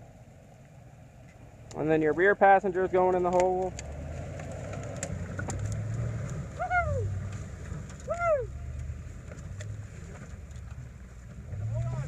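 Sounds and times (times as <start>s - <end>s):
truck engine running low: 0.0s - 12.0s
branches snapping: 3.2s - 10.9s.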